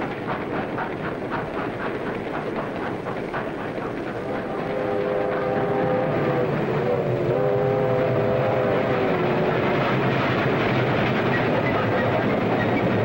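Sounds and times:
train rumbling on rails: 0.0s - 13.0s.

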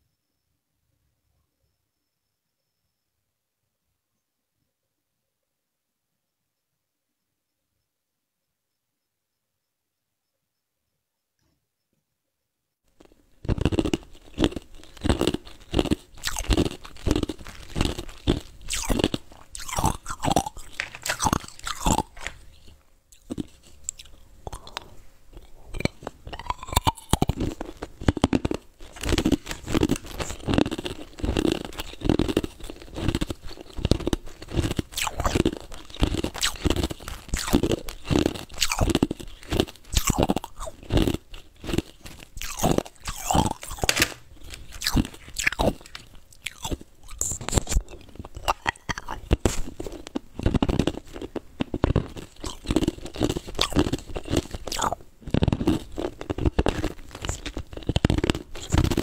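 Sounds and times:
ice cubes crunching between teeth: 13.0s - 59.0s.

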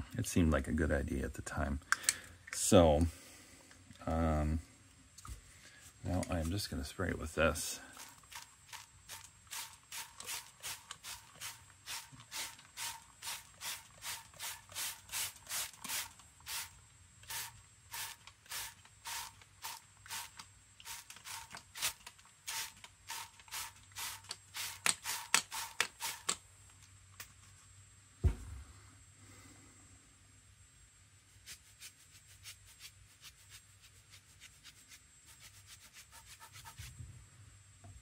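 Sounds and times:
spray bottle squirting: 8.0s - 26.4s
low thump: 28.2s - 28.7s.

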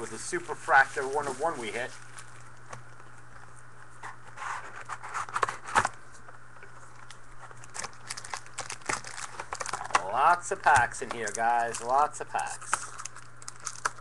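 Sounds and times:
steady low hum: 0.0s - 14.0s
cardboard box rustling and crinkling: 7.6s - 10.1s.

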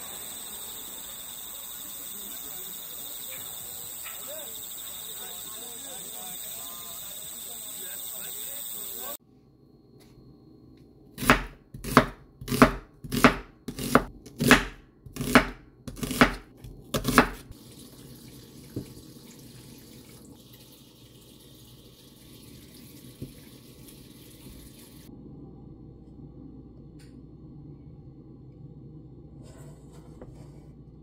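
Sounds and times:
faint steady hiss: 0.0s - 9.2s
knife chopping onion on wooden board: 11.2s - 17.5s.

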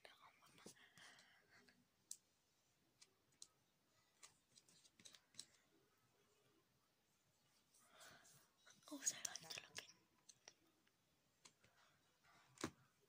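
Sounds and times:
faint makeup clicks and taps: 2.0s - 2.3s, 4.2s - 5.7s, 8.6s - 11.9s.

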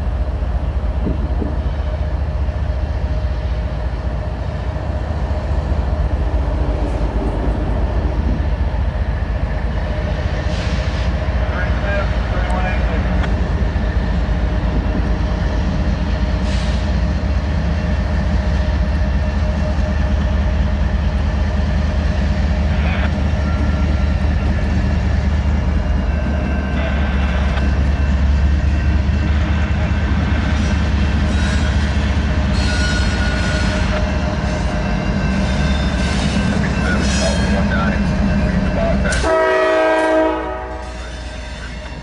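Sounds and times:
diesel locomotive droning: 0.0s - 42.0s
train wheel squeals: 23.1s - 39.3s, 40.7s - 42.0s.

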